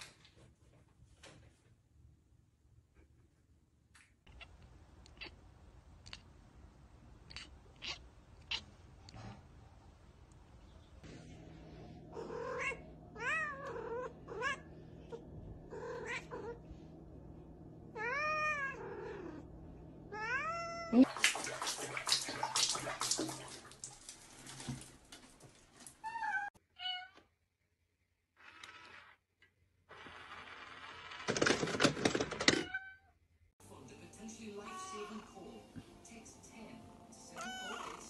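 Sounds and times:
cat meowing: 4.3 - 5.4, 7.2 - 8.7, 12.1 - 14.7, 15.7 - 16.6, 18.0 - 19.4, 20.1 - 21.0, 34.6 - 35.3, 37.4 - 38.0.

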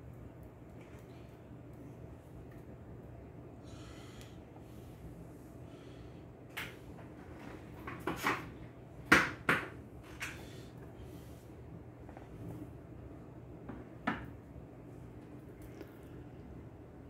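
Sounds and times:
groceries knocking on wooden shelves: 7.4 - 9.8.

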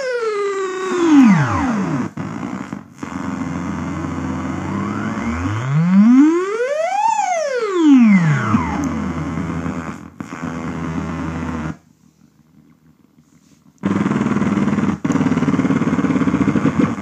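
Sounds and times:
synthesizer tone sweeping up: 0.0 - 2.2, 3.0 - 9.9
buzzy synthesizer tone gliding down: 0.0 - 11.8
noisy low drone: 2.8 - 6.4, 8.0 - 11.8.

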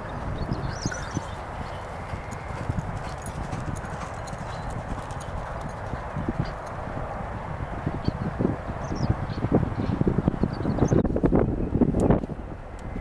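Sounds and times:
hooves clip-clopping: 0.0 - 8.0.

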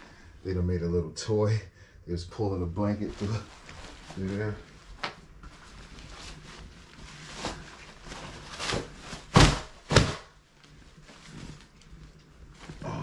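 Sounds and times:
knocks and rustles: 3.2 - 11.8.

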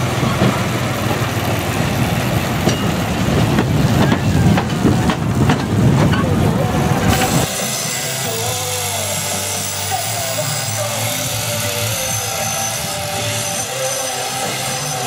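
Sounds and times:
angle grinder sanding wood: 7.2 - 15.0.

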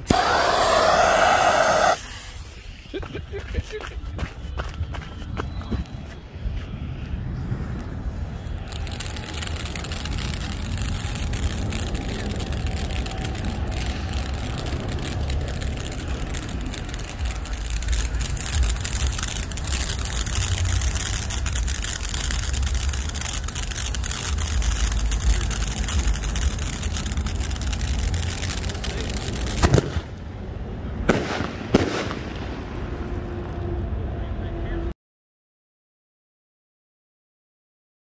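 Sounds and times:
firework bangs: 0.0 - 2.9, 7.9 - 30.3, 31.0 - 33.6
firework fountain hissing and crackling: 0.0 - 4.2, 7.1 - 33.4.

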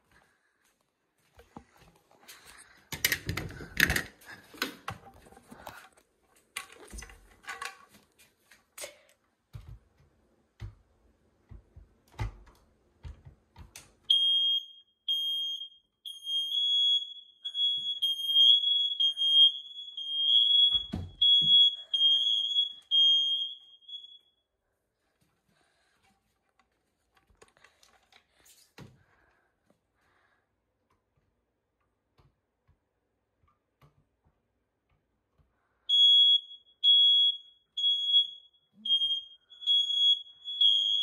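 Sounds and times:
smoke alarm beeping: 14.1 - 24.5, 35.9 - 41.0.

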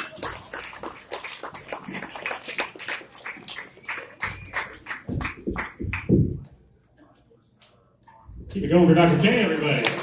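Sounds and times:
audience clapping: 0.0 - 6.4, 9.6 - 10.0.

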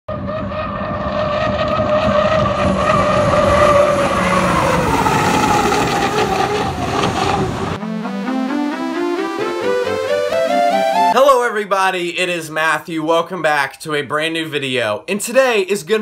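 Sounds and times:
turbine engine whining: 0.1 - 7.9
rushing noise: 0.6 - 7.8.

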